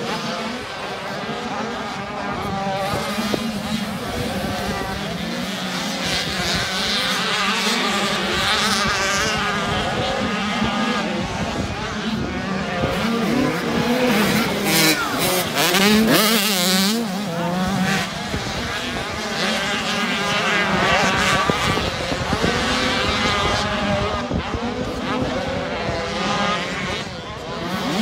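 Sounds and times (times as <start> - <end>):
motocross bikes revving: 0.0 - 28.0.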